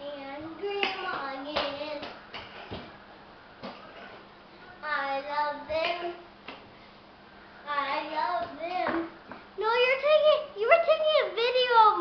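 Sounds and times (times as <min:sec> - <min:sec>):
child singing: 0:00.0 - 0:02.2, 0:04.8 - 0:06.3, 0:07.7 - 0:12.0.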